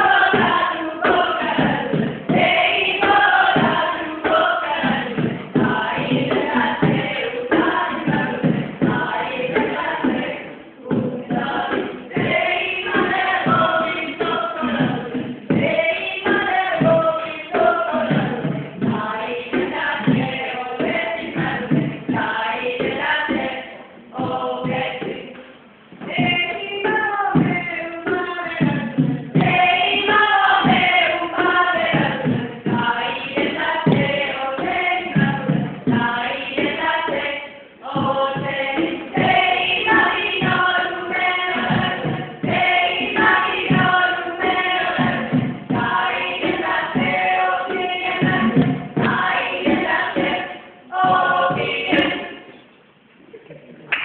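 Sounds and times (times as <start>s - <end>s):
group of people singing: 0.0s - 52.6s
regular beat: 0.0s - 53.6s.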